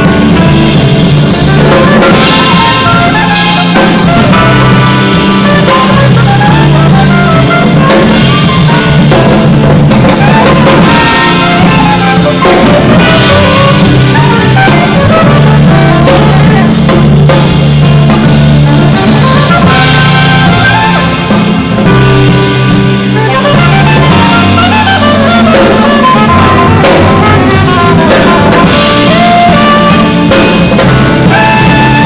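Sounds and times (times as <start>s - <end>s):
drum kit: 0.0s - 32.0s
soprano saxophone melody: 0.0s - 32.0s
upright bass: 0.0s - 32.0s.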